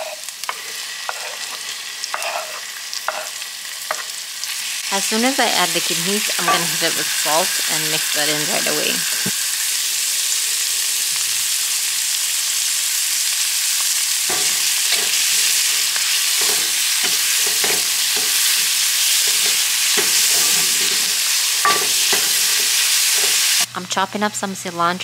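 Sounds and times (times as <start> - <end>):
wooden spoon scraping a pan: 0.0 - 4.1, 14.3 - 23.7
food sizzling in a pan: 0.0 - 23.7.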